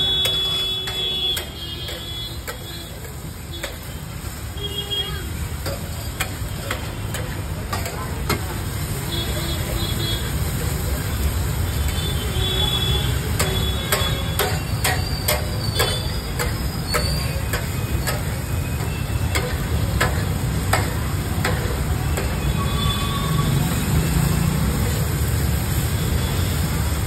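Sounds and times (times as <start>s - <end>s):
spatula tapping on steel griddle: 0.2s - 4.0s, 5.6s - 8.5s, 13.3s - 22.5s.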